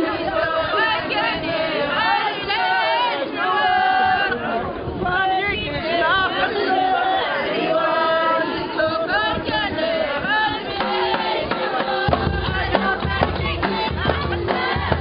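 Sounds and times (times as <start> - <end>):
deep drum beat: 10.7 - 15.0.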